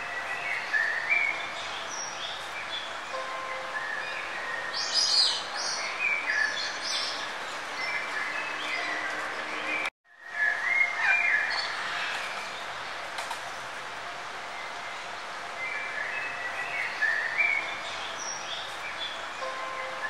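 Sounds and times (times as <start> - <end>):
birds chirping and singing: 0.0 - 13.0, 14.5 - 20.0.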